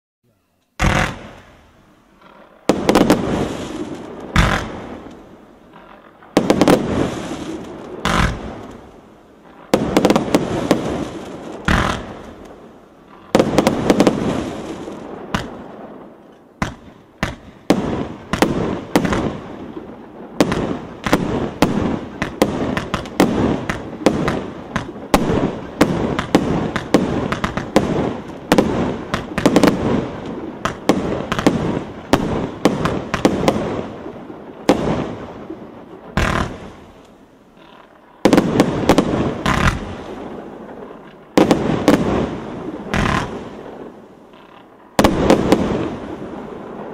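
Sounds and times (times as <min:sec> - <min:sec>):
firework aerial bursts: 0:00.4 - 0:46.9
firework launch thumps: 0:00.8 - 0:01.6, 0:02.7 - 0:05.2, 0:08.0 - 0:08.8, 0:09.8 - 0:12.6, 0:15.3 - 0:15.7, 0:16.6 - 0:19.4, 0:42.9 - 0:43.4
firework trailing hiss: 0:00.8 - 0:37.3, 0:41.3 - 0:44.2.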